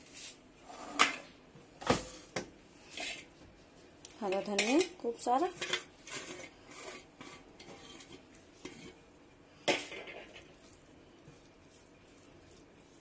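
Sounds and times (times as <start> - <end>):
spatula scraping a pan: 2.8 - 3.3, 4.4 - 13.0.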